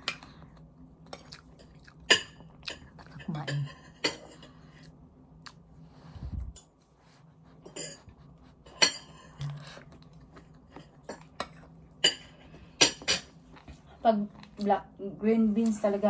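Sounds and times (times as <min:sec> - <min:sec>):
cutlery clinking on a ceramic plate: 0:07.6 - 0:09.6, 0:10.7 - 0:13.3.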